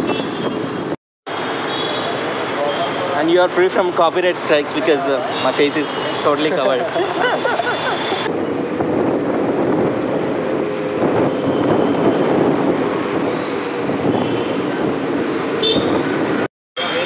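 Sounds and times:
wind rushing: 8.2s - 16.5s.

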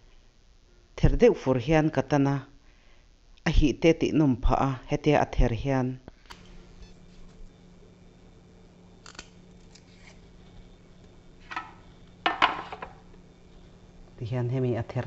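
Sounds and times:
faint steady hum: 0.0s - 15.0s
pods snapping by hand: 9.0s - 9.9s.

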